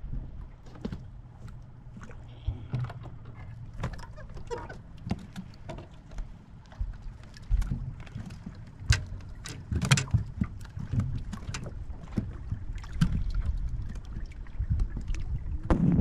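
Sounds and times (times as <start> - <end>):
small waves lapping against hull: 0.0 - 16.0
knocks and clicks on boat: 0.1 - 16.0
steady low rumble: 10.1 - 16.0.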